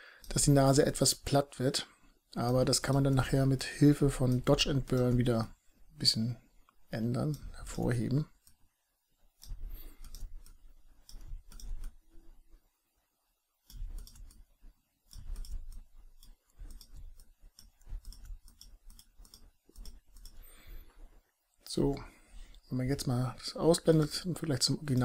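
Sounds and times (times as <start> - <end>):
low rumbling of mouse moving: 0.3 - 13.0, 13.6 - 25.0
computer mouse clicking: 2.8 - 5.3, 9.4 - 12.4, 13.6 - 21.0.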